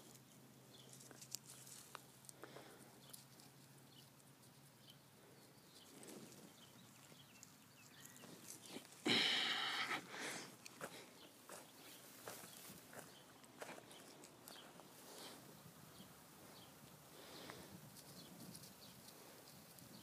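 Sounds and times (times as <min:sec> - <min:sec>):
hands rustling in compost: 0:05.7 - 0:15.7
boots crunching on wood-chip mulch: 0:10.1 - 0:15.2.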